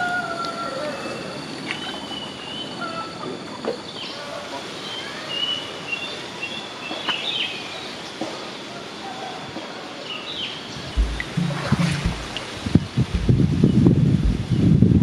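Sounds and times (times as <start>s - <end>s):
steady outdoor hiss: 0.0s - 15.0s
low rumbling thumps: 10.8s - 15.0s.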